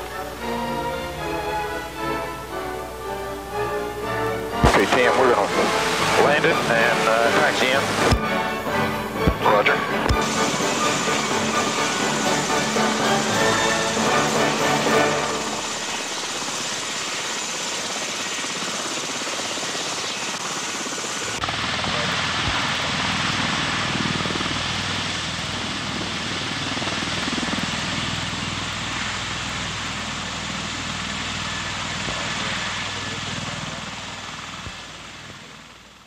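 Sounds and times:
rushing rotor noise: 0.0s - 36.0s.

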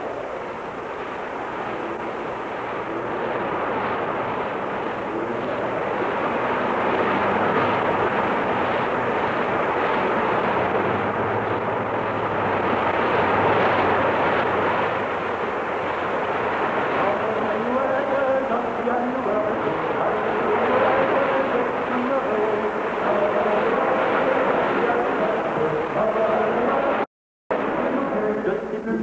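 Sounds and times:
waves breaking: 0.0s - 28.2s
gale-force wind: 0.0s - 29.0s.

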